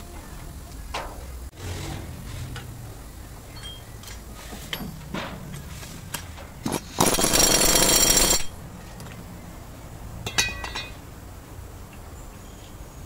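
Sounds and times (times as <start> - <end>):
metallic clank: 3.4 - 7.2, 10.2 - 11.0
impact wrench hammering: 6.6 - 8.6.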